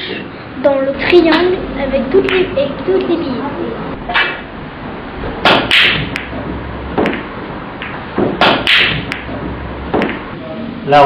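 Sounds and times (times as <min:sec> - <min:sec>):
pool balls clacking: 0:05.2 - 0:10.4.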